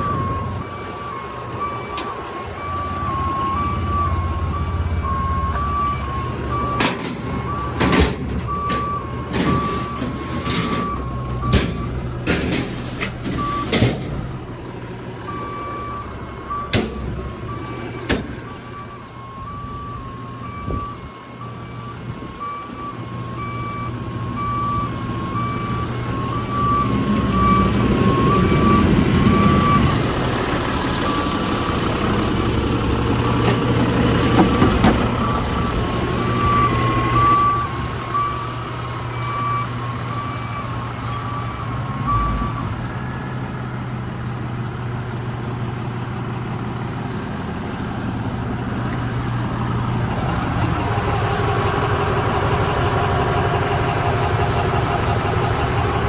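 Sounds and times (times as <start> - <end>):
diesel truck engine running: 0.0 - 56.0
truck backup alarm beeping: 0.0 - 56.0
sharp knocks and clanks: 6.7 - 14.2, 18.0 - 18.5, 33.4 - 35.2.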